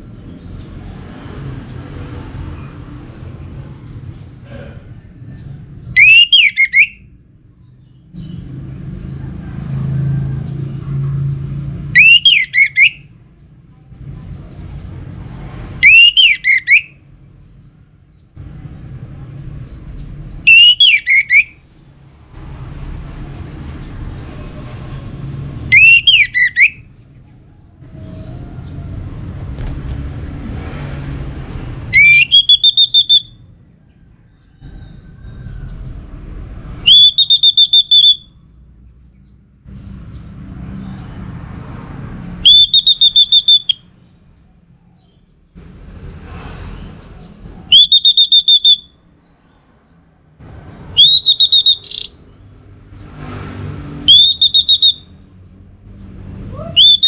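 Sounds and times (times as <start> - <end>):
bird singing whistled phrases: 6.0 - 7.0, 12.0 - 13.1, 15.8 - 17.0, 20.5 - 21.6, 25.7 - 26.9, 31.9 - 33.4, 36.8 - 38.4, 42.4 - 43.9, 47.7 - 49.0, 51.0 - 52.2, 54.1 - 55.1, 56.6 - 57.0.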